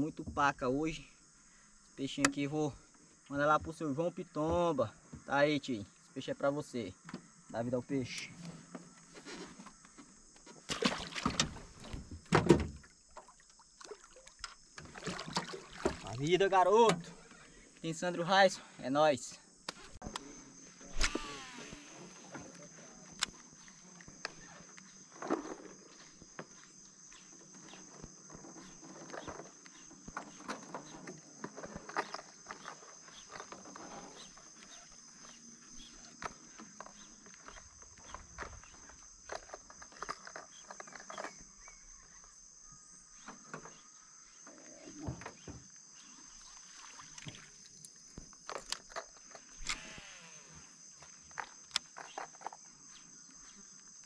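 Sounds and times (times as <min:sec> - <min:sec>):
high-pitched insect drone: 0:20.3 - 0:25.0, 0:48.8 - 0:52.2
small clicks and knocks: 0:47.8 - 0:49.8.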